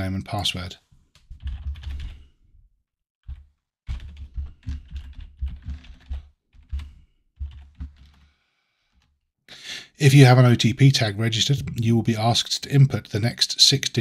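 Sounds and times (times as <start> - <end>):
computer keyboard typing: 1.2 - 2.3, 3.2 - 8.2.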